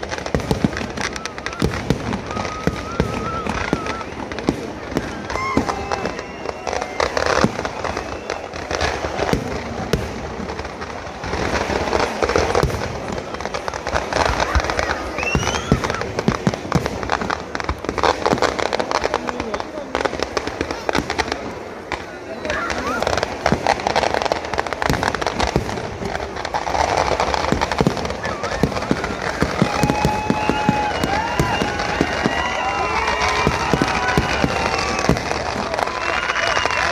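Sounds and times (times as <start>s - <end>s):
firecrackers crackling: 0.0s - 36.9s.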